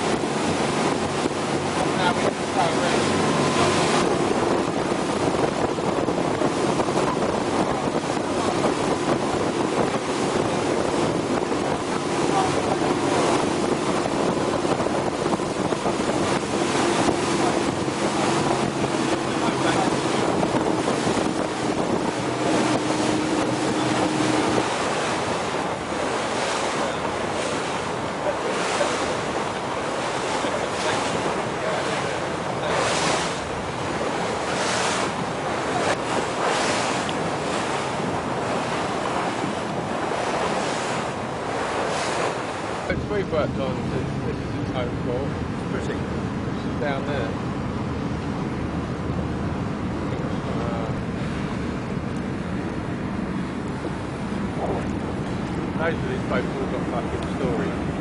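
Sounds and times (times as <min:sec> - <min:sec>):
boat engine hum: 0:00.0 - 0:58.0
water rushing past hull: 0:00.0 - 0:58.0
wind buffeting microphone: 0:00.0 - 0:58.0.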